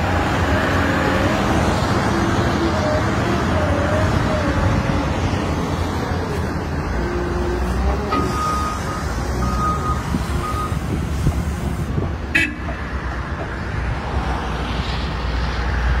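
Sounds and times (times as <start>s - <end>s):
diesel engine low rumble: 0.0s - 16.0s
backup alarm beeping: 8.2s - 10.8s.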